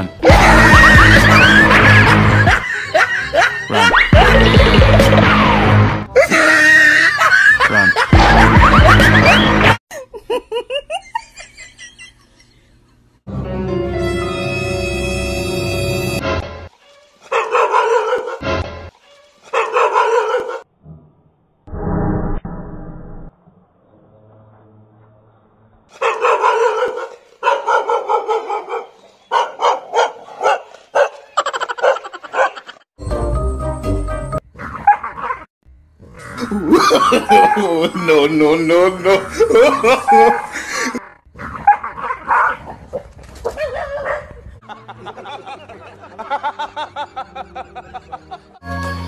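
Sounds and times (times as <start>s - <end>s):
man laughing heartily: 0.2s - 5.5s, 6.2s - 13.1s, 31.3s - 32.9s, 36.4s - 41.2s, 44.6s - 48.6s
dog barking excitedly: 17.3s - 18.4s, 19.5s - 20.6s, 26.0s - 32.7s, 34.7s - 35.5s, 37.2s - 37.6s, 39.6s - 40.6s, 41.4s - 44.4s.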